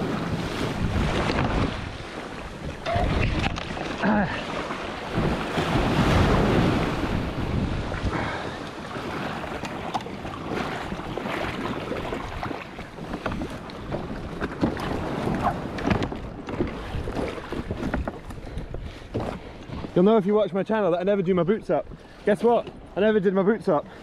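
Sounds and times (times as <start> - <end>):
surf breaking over kayak: 0.0 - 18.0
water slapping against hull: 0.0 - 23.0
wind buffeting microphone: 0.0 - 23.0.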